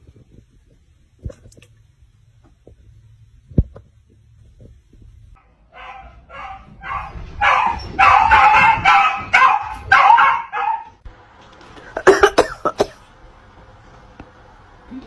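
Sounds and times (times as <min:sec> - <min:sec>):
dog barking: 0:05.4 - 0:11.0.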